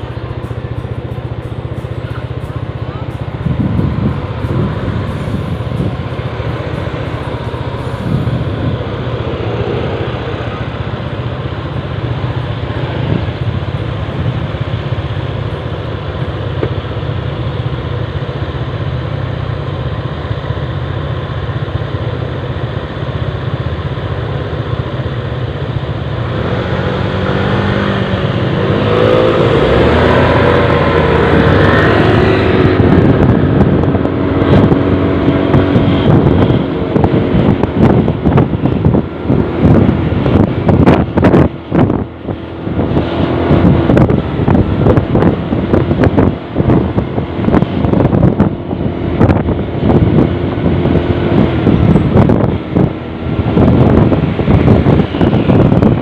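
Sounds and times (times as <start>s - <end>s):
scooter engines idling: 0.0s - 26.3s
scooter accelerating away: 25.9s - 40.4s.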